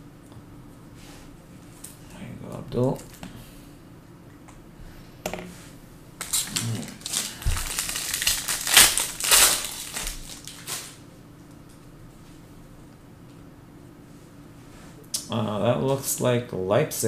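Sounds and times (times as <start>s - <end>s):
wrapper crinkling and tearing: 6.2s - 11.0s.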